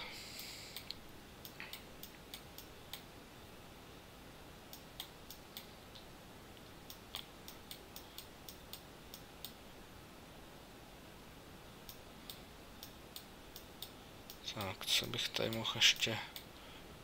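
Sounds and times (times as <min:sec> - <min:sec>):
faint hiss: 0:00.0 - 0:17.0
computer mouse clicking: 0:11.9 - 0:16.5.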